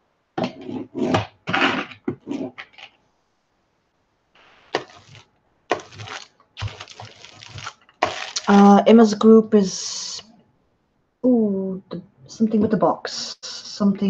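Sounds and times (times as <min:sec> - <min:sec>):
brayer rolling tacky crackle: 0:04.4 - 0:08.9.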